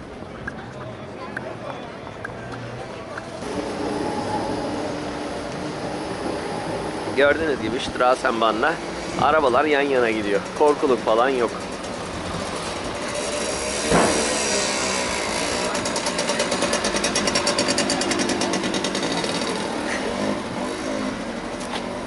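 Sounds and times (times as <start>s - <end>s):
bus moving: 0.0s - 22.0s
city street traffic: 0.0s - 22.0s
motor scooter engine passing: 3.3s - 22.0s
sharp knock: 13.9s - 14.3s.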